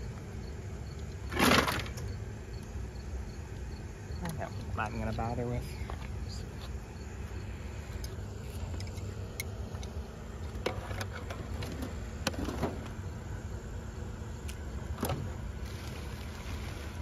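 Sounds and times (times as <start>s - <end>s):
plastic bags rustling: 15.6s - 17.0s.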